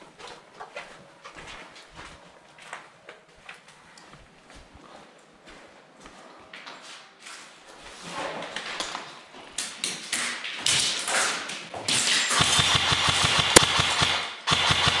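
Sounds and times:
sharp crack: 11.9s - 15.0s
airsoft gun full-auto bursts: 12.3s - 15.0s.

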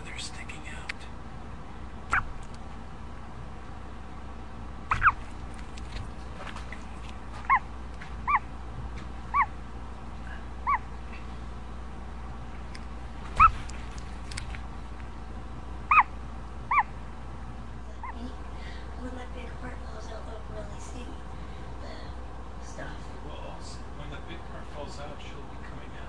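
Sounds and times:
chick peeping inside egg: 4.9s - 5.8s, 7.4s - 8.5s, 9.3s - 9.6s, 10.6s - 10.9s, 15.9s - 17.0s.

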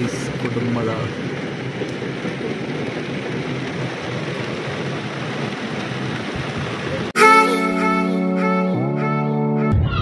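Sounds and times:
heavy rain on car roof: 0.0s - 7.2s.

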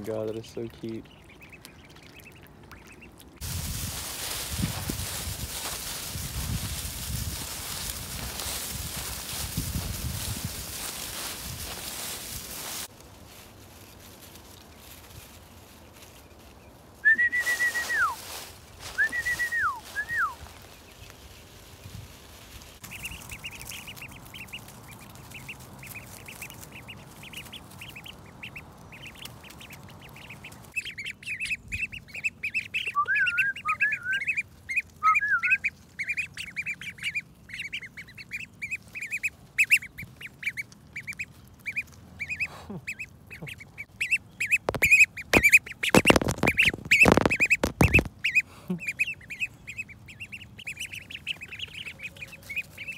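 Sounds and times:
ducklings peeping: 0.0s - 12.9s, 13.8s - 52.9s
duckling calls dropping in pitch: 42.3s - 49.5s.

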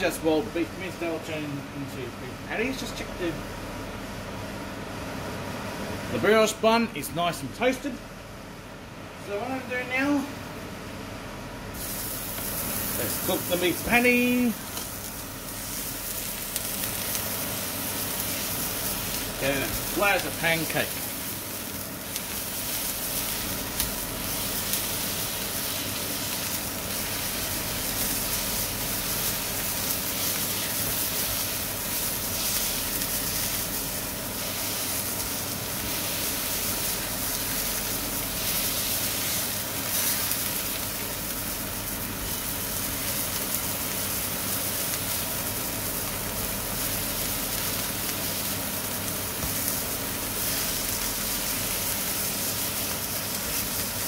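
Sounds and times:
meat patty sizzling in a frying pan: 11.7s - 54.0s.

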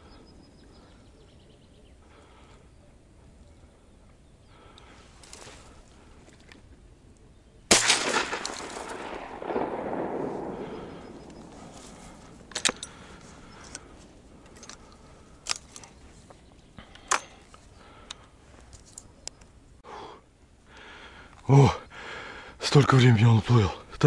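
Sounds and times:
shotgun shot echoing: 7.7s - 13.1s.

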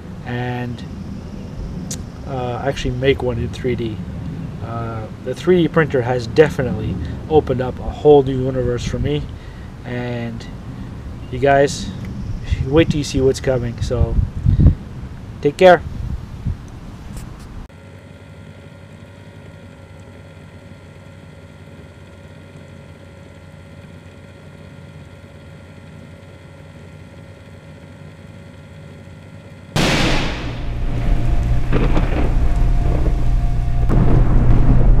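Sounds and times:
deep thunder-like rumble: 29.8s - 35.0s
quiet steady drone: 29.8s - 35.0s
whoosh and boom: 29.8s - 35.0s.

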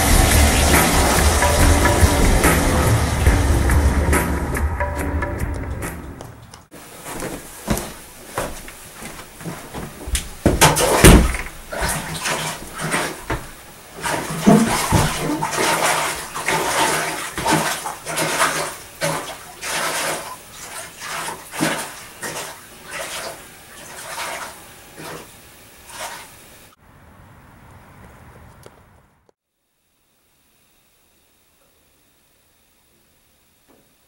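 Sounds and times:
water splashing and sloshing: 0.0s - 4.2s, 5.8s - 26.8s
knocks: 9.8s - 11.5s.

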